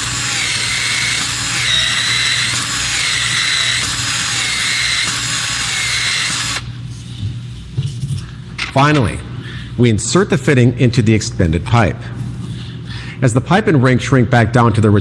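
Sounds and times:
expansion tool motor whirring: 0:00.0 - 0:06.8.

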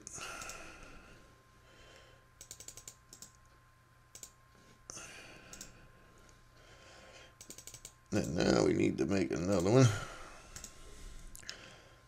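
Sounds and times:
faint computer keyboard typing: 0:00.3 - 0:00.6, 0:02.4 - 0:04.4, 0:05.4 - 0:05.8, 0:07.4 - 0:08.6, 0:09.4 - 0:09.8, 0:10.5 - 0:10.8.

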